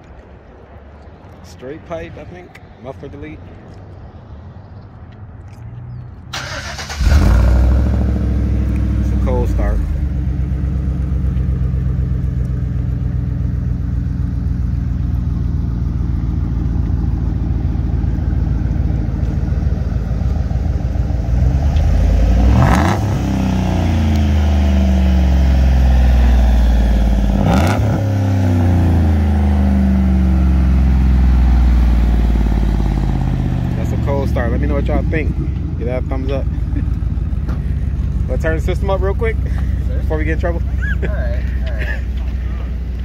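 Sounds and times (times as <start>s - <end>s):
car engine idling and revving: 2.3s - 43.0s
exhaust crack: 4.9s - 43.0s.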